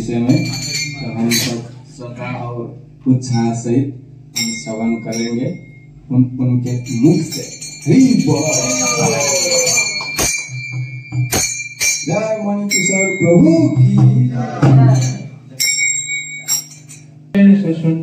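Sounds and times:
men talking: 0.0s - 10.2s, 12.1s - 15.6s
small metal bell ringing: 0.2s - 1.7s, 4.4s - 14.0s, 14.9s - 17.1s
sharp clacks: 10.0s - 12.1s.

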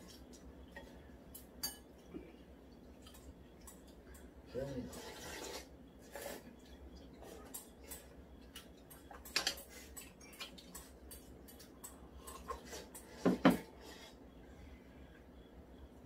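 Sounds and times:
chopsticks tapping ceramic bowls: 7.5s - 13.5s.

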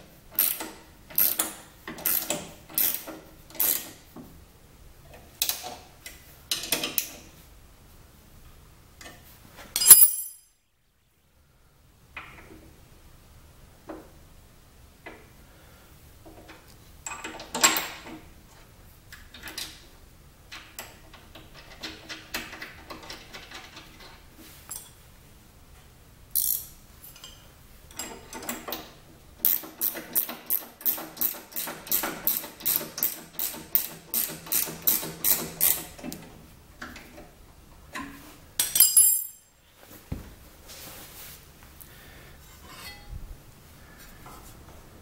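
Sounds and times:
small metal hardware clinking: 9.7s - 10.6s, 24.7s - 25.0s, 26.4s - 28.4s, 38.6s - 39.6s
ratchet wrench clicking: 29.4s - 35.9s.

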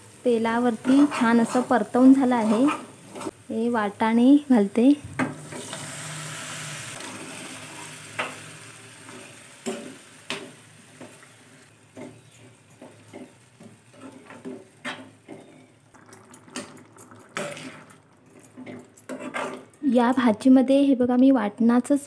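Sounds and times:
peas sizzling in oil: 0.0s - 19.6s.

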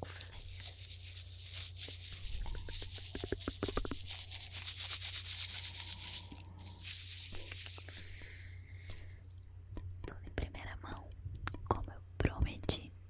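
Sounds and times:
wrapper crinkling: 0.0s - 8.4s.

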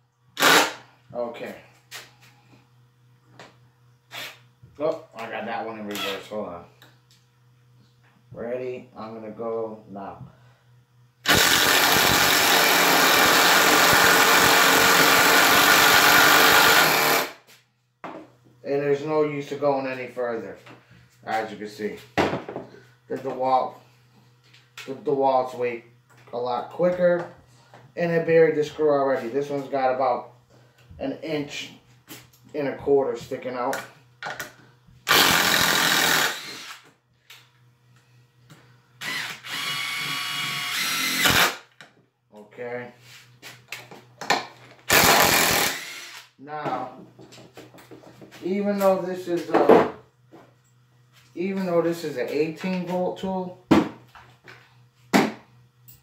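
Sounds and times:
impact drivers driving screws into wood: 0.4s - 0.8s, 11.3s - 17.4s, 35.1s - 36.9s, 39.0s - 41.6s, 44.9s - 46.3s.

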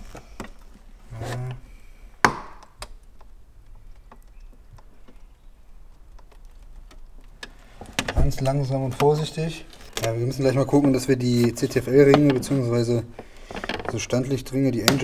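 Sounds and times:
plastic clicks and creaks: 0.0s - 1.6s, 2.3s - 15.0s
sharp plastic crack: 2.2s - 9.2s.

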